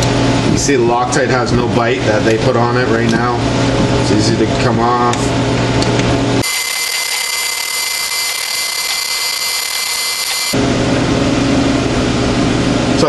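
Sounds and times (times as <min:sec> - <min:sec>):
steady high-pitched tones: 0:06.4 - 0:10.6.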